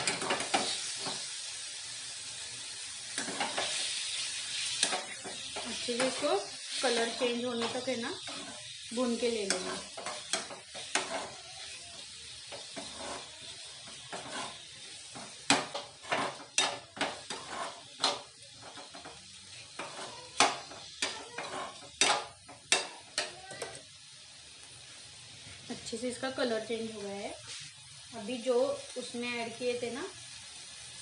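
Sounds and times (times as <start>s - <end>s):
chicken sizzling in a pan: 0.0s - 31.0s
spoon scraping and clinking on pan: 9.3s - 11.4s, 12.5s - 14.6s, 15.2s - 19.2s, 19.8s - 23.7s.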